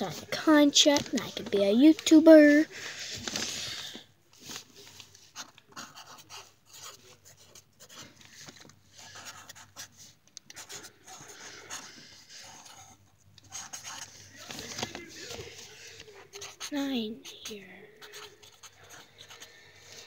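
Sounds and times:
pen scratching on paper: 5.3 - 8.1, 9.0 - 14.3, 15.3 - 20.0.

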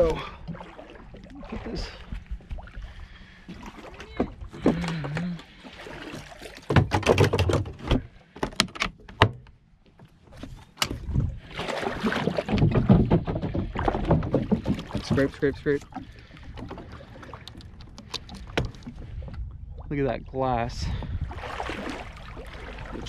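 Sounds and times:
water splashing and sloshing: 0.0 - 23.0
knocks against hull: 6.6 - 9.4, 10.8 - 19.4.

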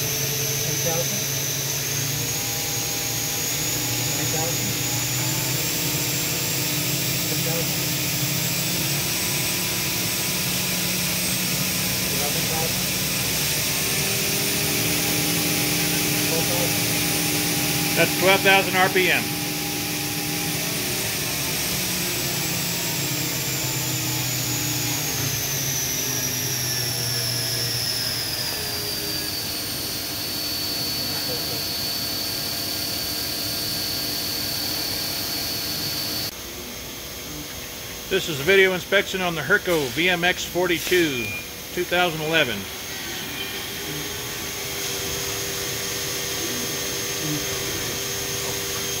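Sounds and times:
high-speed spindle whine: 0.0 - 49.0
low machine hum: 0.0 - 49.0.

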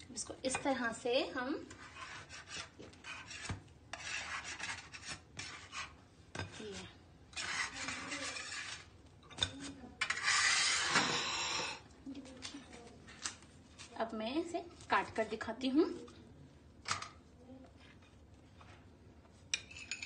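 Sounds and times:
brush scraping over bread: 1.7 - 6.0, 6.6 - 9.0, 9.7 - 11.5.

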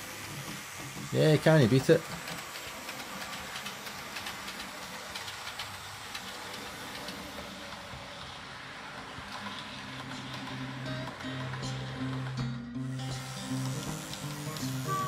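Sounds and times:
model train rattling on track: 0.0 - 15.0.

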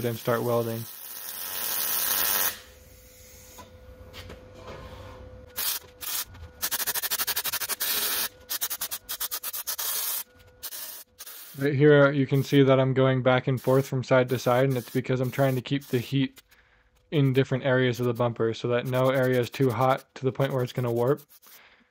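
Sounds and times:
welding arc pulsing: 0.0 - 3.0, 5.6 - 11.6, 13.6 - 16.4
welding arc hissing: 0.0 - 3.4, 5.6 - 11.7, 13.6 - 16.5.

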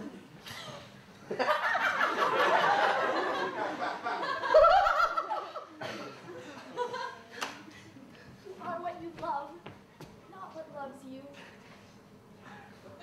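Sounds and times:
audience laughing: 0.6 - 7.4.

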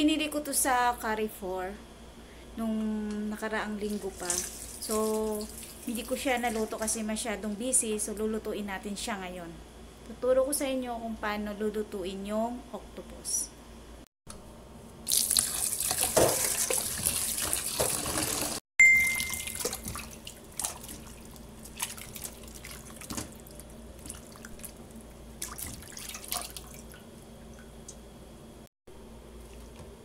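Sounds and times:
short ringing tone: 18.8 - 19.6
soft splashing in water: 19.0 - 28.0.

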